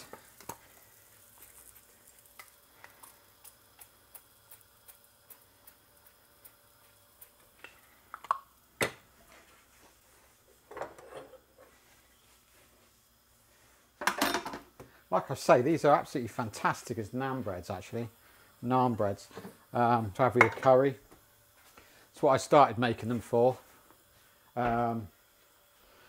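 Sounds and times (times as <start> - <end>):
flatbread sizzling in oil: 0.0 - 26.0.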